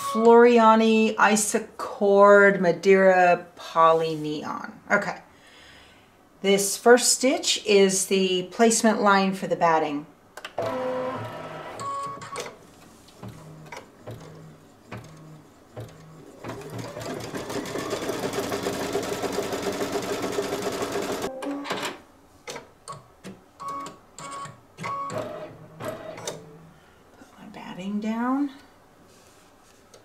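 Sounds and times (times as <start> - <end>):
embroidery machine stitching: 10.6 - 12.6, 13.2 - 22.0.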